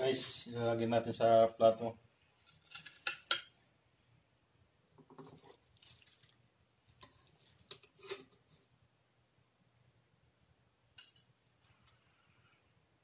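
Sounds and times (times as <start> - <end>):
metal spoon scraping a wok: 7.7 - 8.4.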